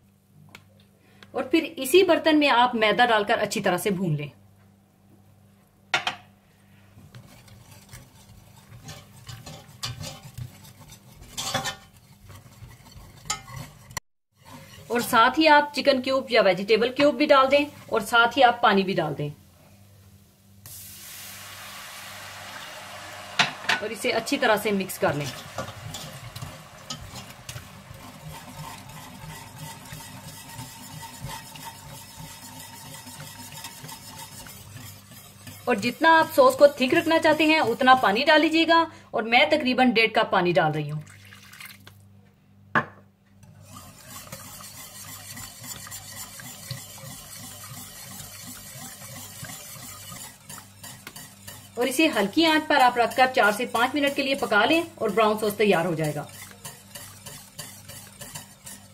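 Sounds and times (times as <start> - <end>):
spoon scraping a pot: 7.0 - 15.4, 23.4 - 38.4, 43.4 - 58.9.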